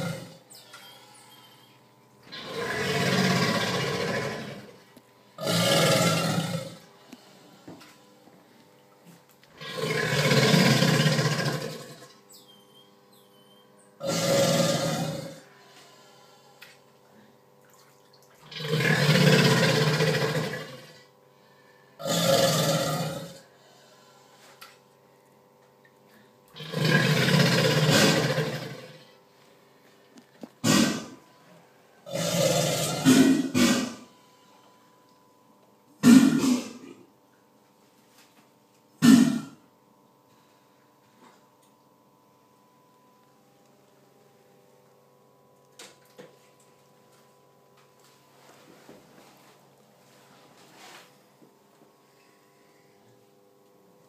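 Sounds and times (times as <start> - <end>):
alligator bellowing: 0.0 - 0.4, 2.3 - 4.8, 5.4 - 6.8, 9.5 - 12.1, 14.0 - 15.5, 18.4 - 21.1, 22.0 - 23.4, 26.6 - 29.0, 30.6 - 31.2, 32.0 - 34.1, 39.0 - 39.6.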